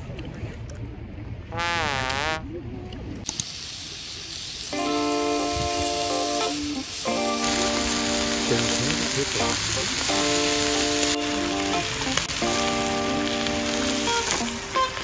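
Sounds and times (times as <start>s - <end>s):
meat sizzling on griddle: 3.4s - 15.0s
background music of held chords: 4.8s - 15.0s.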